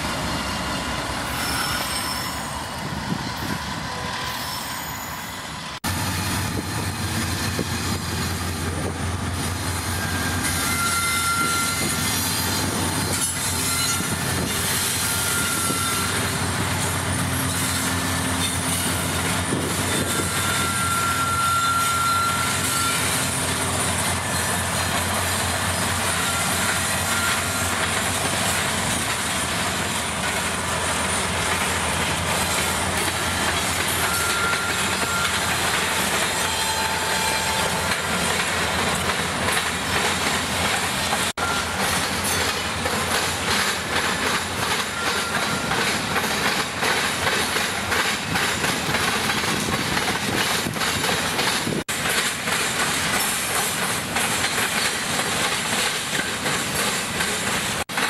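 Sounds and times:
freight cars clickety-clack on rails: 0.0s - 4.4s, 5.0s - 58.0s
diesel locomotive passing: 0.0s - 58.0s
thin wheel squeals: 1.2s - 5.7s, 9.8s - 28.6s, 32.3s - 38.3s.

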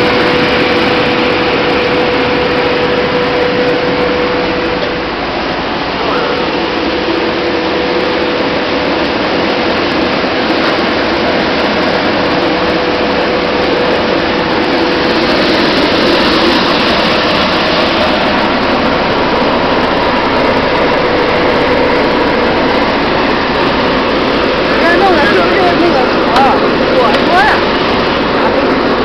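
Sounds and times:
seed cleaning machine humming: 0.0s - 29.0s.

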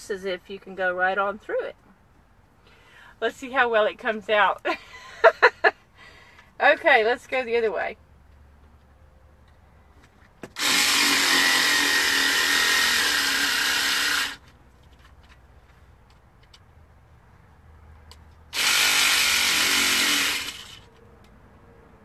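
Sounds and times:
electric carving tool cutting: 10.6s - 14.5s, 18.5s - 20.9s.

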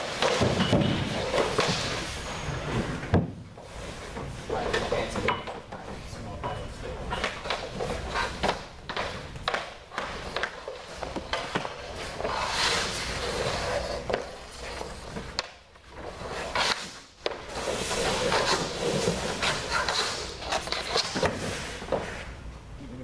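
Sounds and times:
skates scraping on ice: 0.0s - 5.2s, 7.1s - 22.4s
stick clacking on puck: 4.7s - 22.2s.

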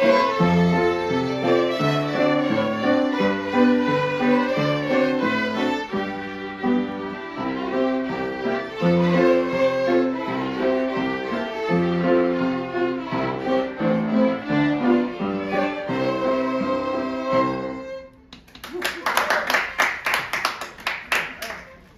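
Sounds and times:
piano accompaniment: 0.0s - 18.2s
violins playing a tune: 0.0s - 18.3s
applause: 18.4s - 21.9s.

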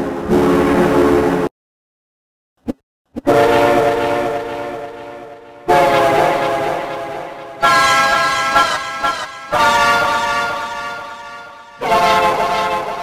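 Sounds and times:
train horn chord: 3.4s - 13.0s.

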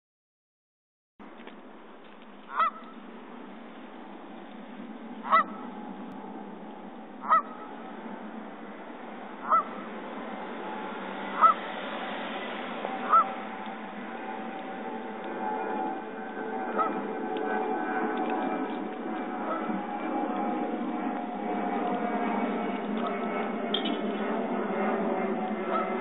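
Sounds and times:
steady background noise: 1.2s - 26.0s
geese honking: 2.5s - 3.0s, 5.2s - 5.8s, 7.2s - 8.0s, 9.3s - 10.0s, 11.2s - 11.8s, 12.8s - 17.2s, 18.2s - 19.8s, 25.6s - 26.0s.

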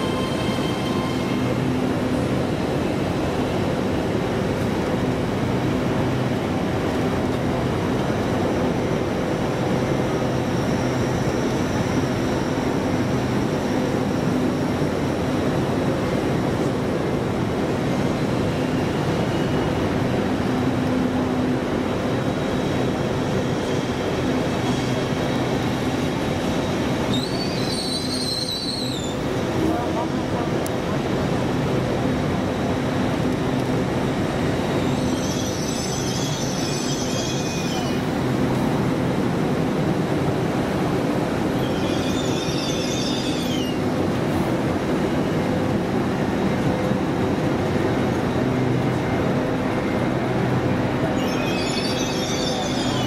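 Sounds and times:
brief high squeal: 0.0s - 1.5s, 27.1s - 29.2s, 34.8s - 38.1s, 41.6s - 43.8s, 51.2s - 53.0s
train rumbling slowly: 0.0s - 53.0s.

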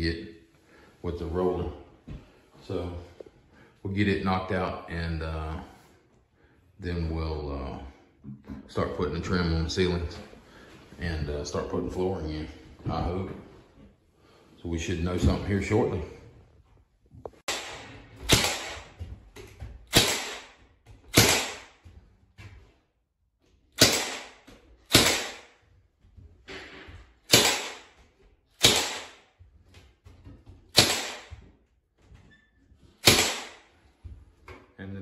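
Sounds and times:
nail gun firing: 17.5s - 19.0s, 19.8s - 21.8s, 23.8s - 25.6s, 27.2s - 28.0s, 28.6s - 29.3s, 30.7s - 31.4s, 33.0s - 33.8s.

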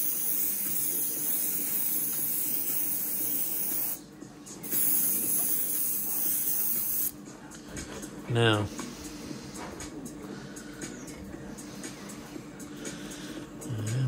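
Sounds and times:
airbrush hissing: 0.0s - 4.0s, 4.6s - 7.2s.

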